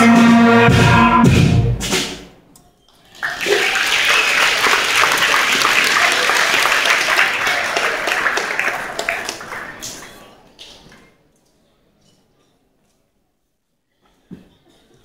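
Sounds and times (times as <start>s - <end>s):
school band chord: 0.0s - 2.2s
audience applause: 3.0s - 10.6s.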